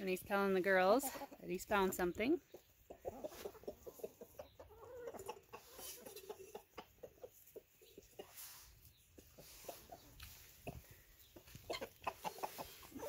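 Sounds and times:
rooster clucking: 2.5s - 8.4s, 9.2s - 13.0s.

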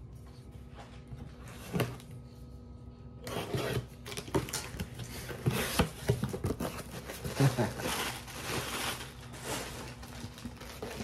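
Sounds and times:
faint electrical hum: 0.0s - 11.0s
cardboard scraping and rustling: 3.2s - 11.0s.

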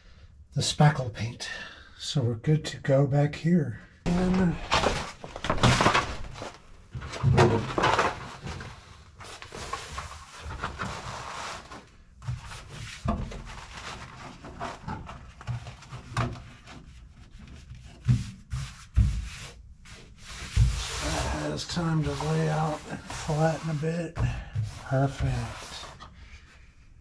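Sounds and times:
mat rustling and rubbing: 4.1s - 26.6s.

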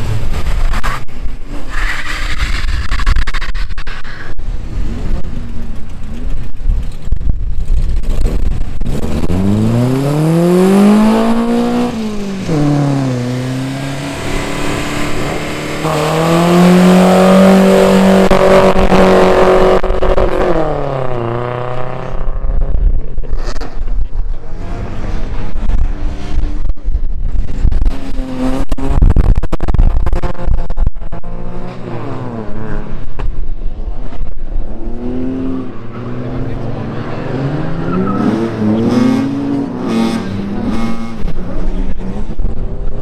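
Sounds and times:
racing engines rumbling: 0.0s - 43.0s
engine revving: 8.0s - 22.7s, 34.0s - 42.5s.

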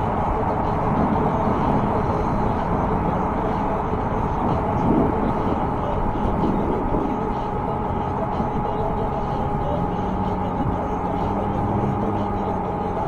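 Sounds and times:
wind rushing on microphone: 0.0s - 8.8s
road traffic: 0.0s - 13.0s.

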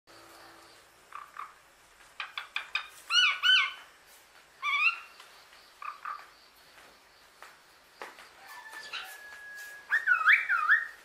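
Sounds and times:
myna gliding whistles: 8.8s - 11.0s.

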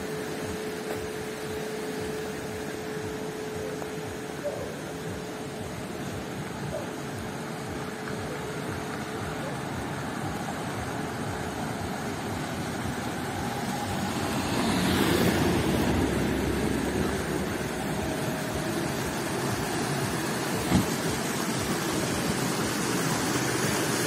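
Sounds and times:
stream rushing down stone channel: 5.0s - 24.0s.

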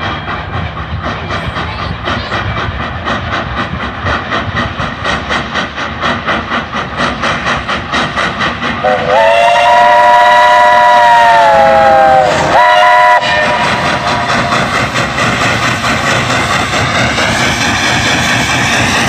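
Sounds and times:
steam locomotive chuffing: 0.0s - 19.0s
steam whistle: 8.8s - 14.4s.

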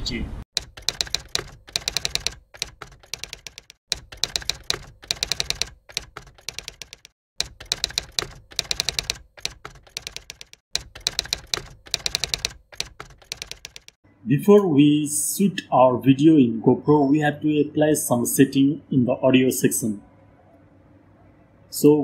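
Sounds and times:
typewriter keys clacking: 0.6s - 14.0s.

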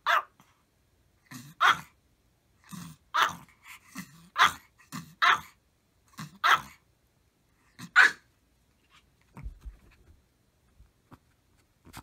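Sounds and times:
dog barking: 0.0s - 0.4s, 1.6s - 2.0s, 4.3s - 5.6s, 6.4s - 6.8s, 7.8s - 8.3s.

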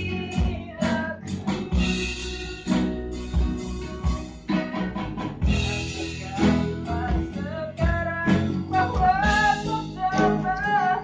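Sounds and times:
man singing: 0.0s - 2.4s, 5.5s - 11.0s
acoustic guitar and bass playing: 0.0s - 11.0s.

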